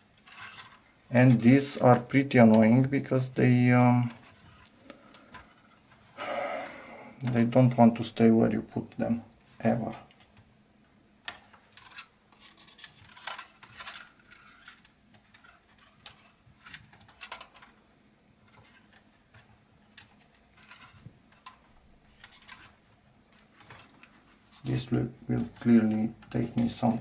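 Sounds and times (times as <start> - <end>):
small clicks and light scrapes: 0.1 - 1.4, 4.0 - 6.1, 11.2 - 17.8, 18.4 - 24.7.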